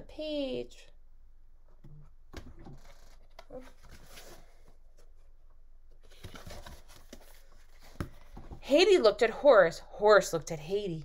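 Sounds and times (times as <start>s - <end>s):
board book pages turning: 2.5s - 5.2s, 6.0s - 8.6s.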